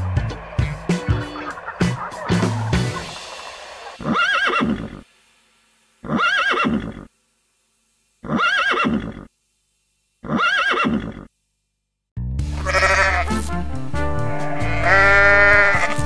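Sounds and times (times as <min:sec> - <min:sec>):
horse whinnying: 0:04.0 - 0:05.0, 0:06.0 - 0:07.1, 0:08.2 - 0:09.3, 0:10.2 - 0:11.3.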